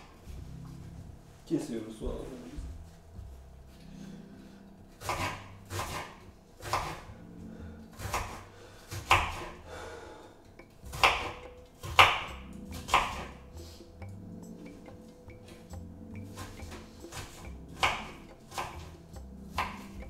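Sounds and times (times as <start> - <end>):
knife chopping on wooden board: 5.0 - 7.1, 8.0 - 9.6, 10.6 - 20.0.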